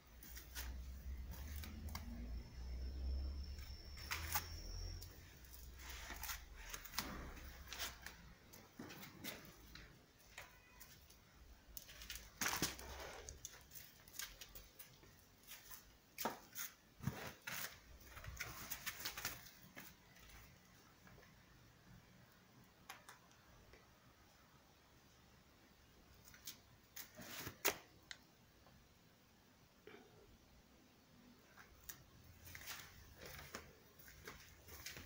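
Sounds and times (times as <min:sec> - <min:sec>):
handling noise rustles: 0:31.7 - 0:35.0.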